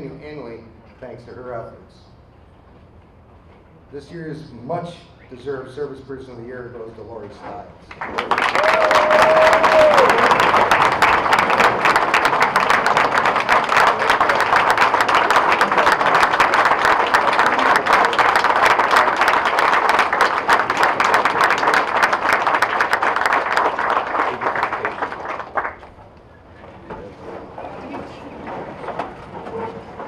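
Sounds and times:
audience applauding: 0:07.9 - 0:26.0.

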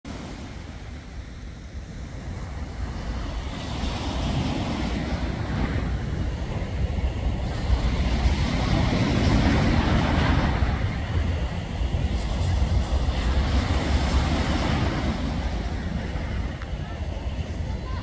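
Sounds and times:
wind buffeting microphone: 0:00.0 - 0:18.0
waves washing onto pebbles: 0:12.0 - 0:16.5.

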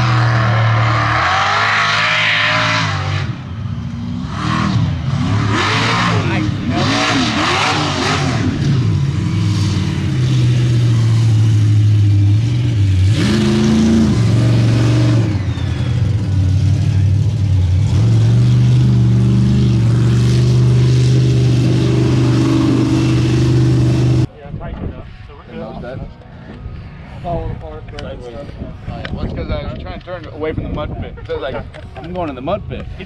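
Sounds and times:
truck engine running hard: 0:00.0 - 0:24.3.

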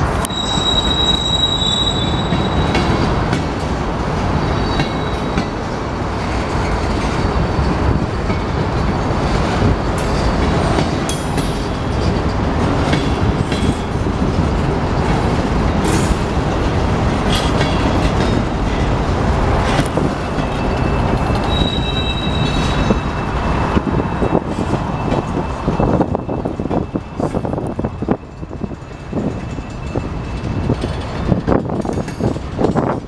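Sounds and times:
train wheels rumbling on rail: 0:00.0 - 0:33.0
high wheel squeal: 0:00.2 - 0:03.0, 0:04.3 - 0:05.5, 0:20.0 - 0:30.4.

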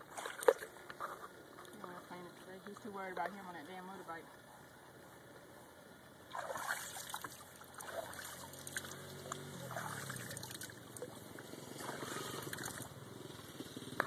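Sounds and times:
hand splashing water: 0:06.3 - 0:11.1.

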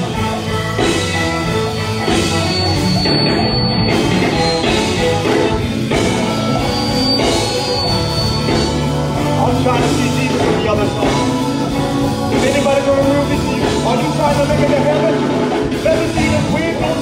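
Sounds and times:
live gospel band: 0:00.0 - 0:17.0.

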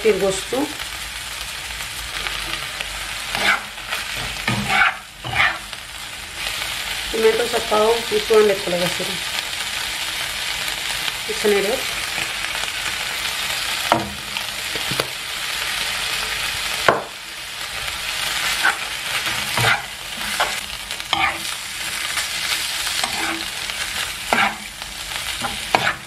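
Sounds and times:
food sizzling in a frying pan: 0:00.0 - 0:26.0
metal spoon scraping a pan: 0:03.3 - 0:05.6, 0:18.4 - 0:24.7, 0:25.4 - 0:26.0.

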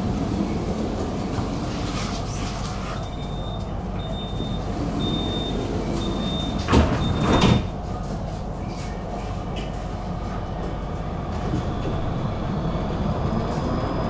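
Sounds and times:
tram hum: 0:00.0 - 0:14.0
short high warning beeps: 0:03.0 - 0:07.4
tram doors thudding shut: 0:03.2 - 0:08.3.

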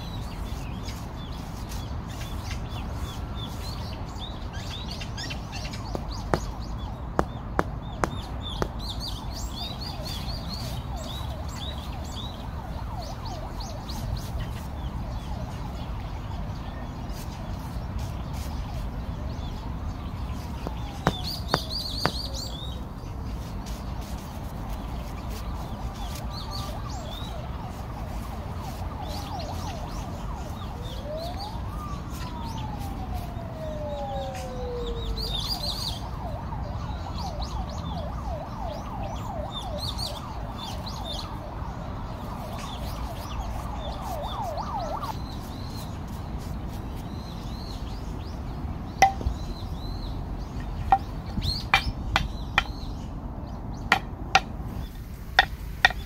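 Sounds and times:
birds chirping: 0:00.0 - 0:56.0
siren wailing and warbling: 0:25.8 - 0:41.5, 0:42.3 - 0:45.7
rubber mallet tapping bricks: 0:49.0 - 0:49.3, 0:50.9 - 0:52.8, 0:53.9 - 0:54.6, 0:55.4 - 0:56.0.

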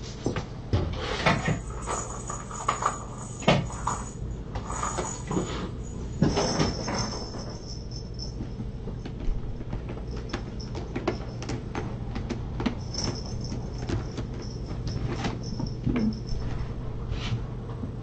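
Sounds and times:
steady low hum: 0:00.0 - 0:18.0
kittens knocking and tapping: 0:08.3 - 0:16.4.

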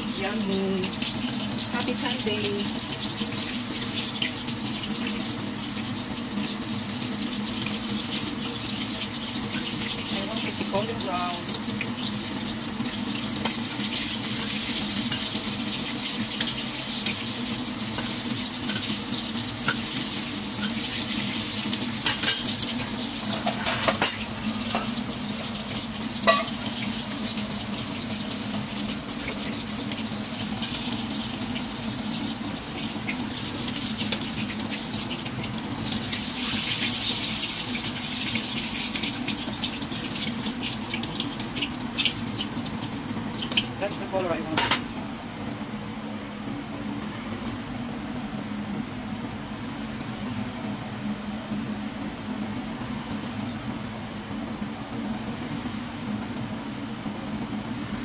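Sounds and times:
food deep-frying sizzle: 0:00.0 - 0:58.0
metal ladle knocking wok: 0:26.2 - 0:26.6.

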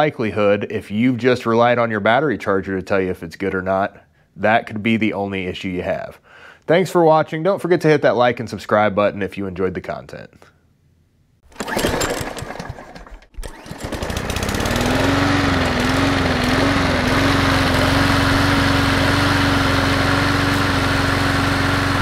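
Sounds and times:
generator engine cranking and running: 0:11.5 - 0:22.0.

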